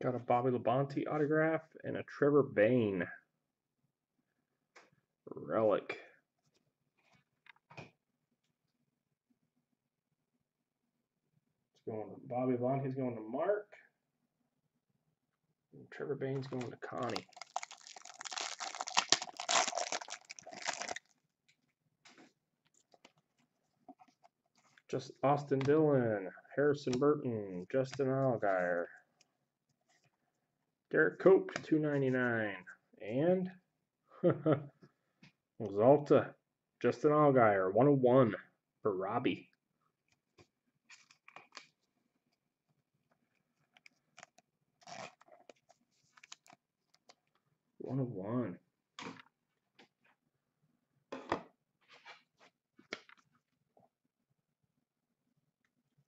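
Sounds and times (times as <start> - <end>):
trading cards rustling: 16.4 - 21.1.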